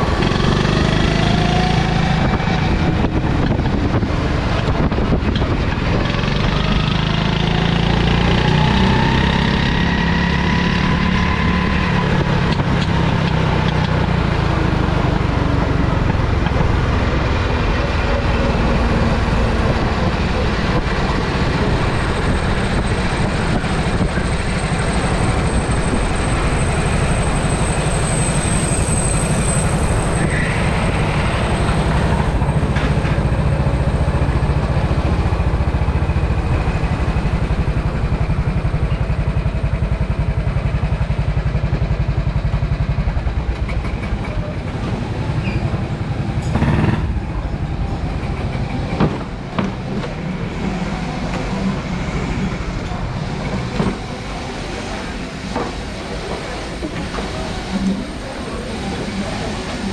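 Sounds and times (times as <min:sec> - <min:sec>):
go-kart engine revving: 0:00.0 - 0:59.9.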